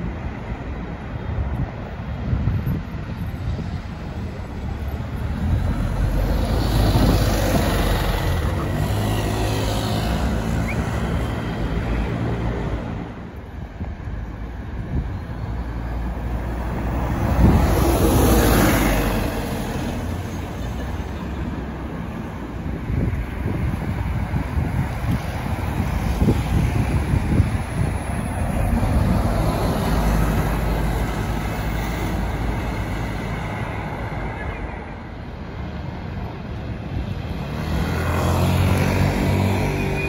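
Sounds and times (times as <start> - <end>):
bus engine passing: 0.0 - 40.0
city road traffic: 0.0 - 40.0.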